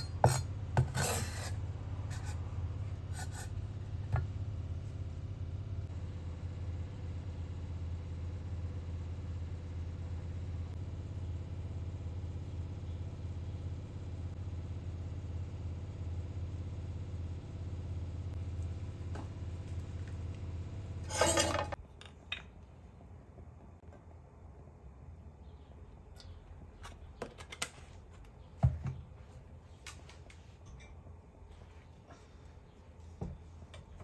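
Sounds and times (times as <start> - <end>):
kitchenware clattering: 21.1 - 22.6.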